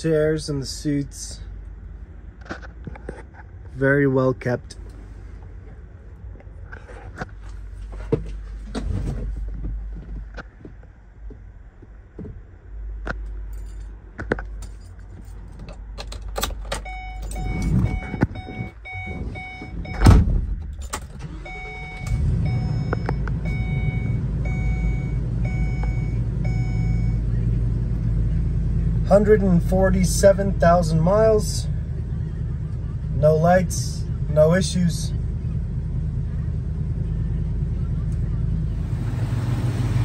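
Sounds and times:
keys and handling clicks: 13.5s - 18.2s
engine cranking and starting: 20.6s - 23.1s.

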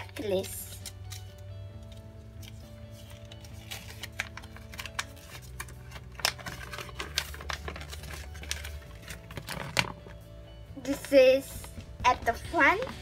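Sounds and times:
paper crackling and clicking: 0.2s - 10.2s.

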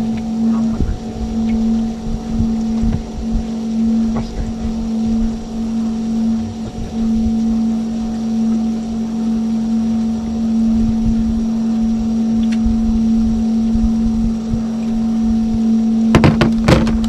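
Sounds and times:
low rumbles: 0.0s - 17.0s
small engine humming: 0.0s - 17.0s.

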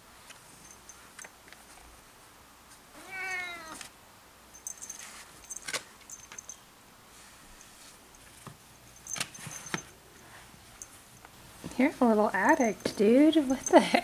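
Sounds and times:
cat meowing: 3.0s - 3.8s.

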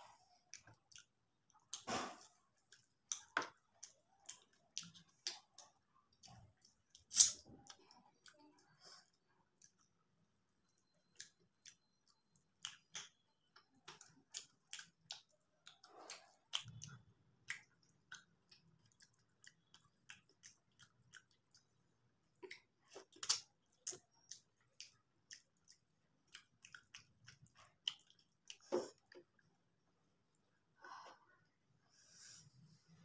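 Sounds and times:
chewing with wet mouth clicks: 0.2s - 30.6s.

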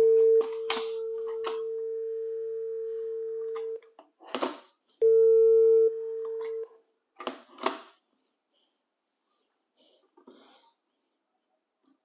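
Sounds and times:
phone dial tone: 0.0s - 3.8s.

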